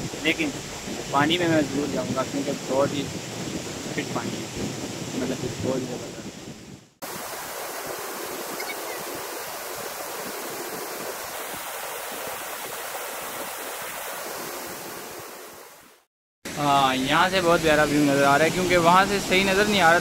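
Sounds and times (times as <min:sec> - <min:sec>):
water rushing over rocks: 0:07.0 - 0:20.0.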